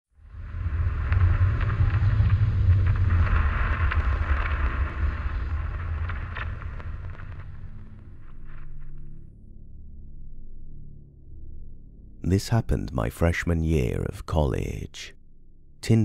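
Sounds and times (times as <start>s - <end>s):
deep rumble: 0.1s - 12.3s
crackling hiss: 0.2s - 9.3s.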